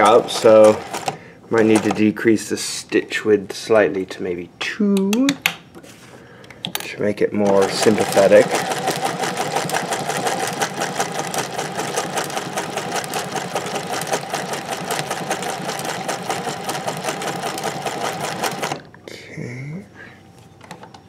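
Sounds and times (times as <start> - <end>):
sewing machine clattering: 0.0 - 2.1, 7.4 - 18.9.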